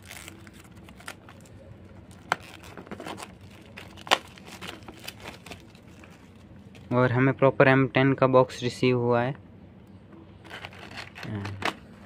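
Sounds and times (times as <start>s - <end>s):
plastic wrap crinkling: 0.0s - 6.9s.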